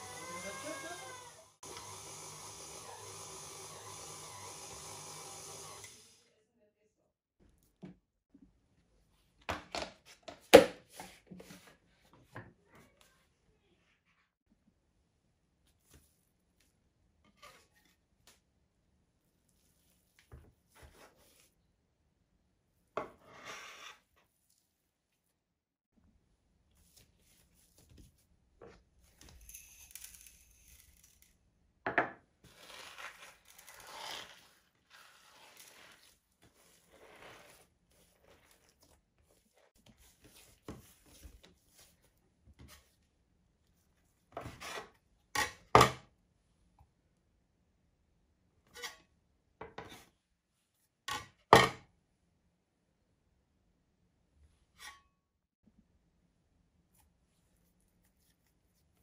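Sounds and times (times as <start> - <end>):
hands kneading gritty dough: 32.6 - 42.2.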